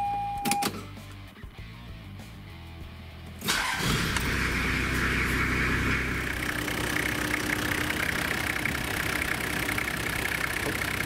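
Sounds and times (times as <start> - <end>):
car engine idling: 3.5 - 11.0.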